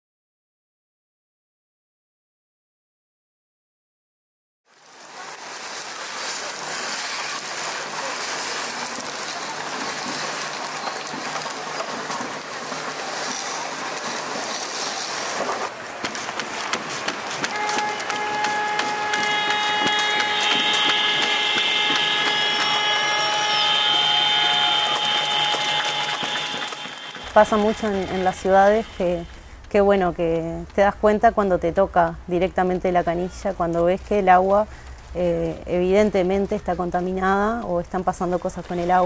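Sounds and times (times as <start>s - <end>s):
faint ticks and knocks: 16.0s - 22.8s
held tones: 17.5s - 29.4s
steady noisy hiss: 22.0s - 36.0s.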